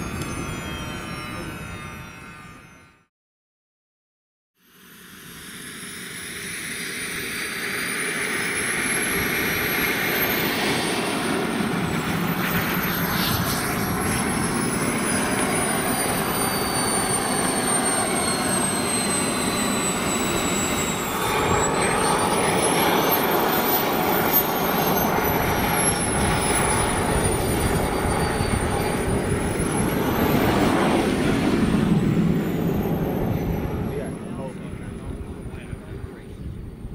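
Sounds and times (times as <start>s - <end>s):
model jet turbine whine: 0.0s - 3.1s, 4.6s - 36.9s.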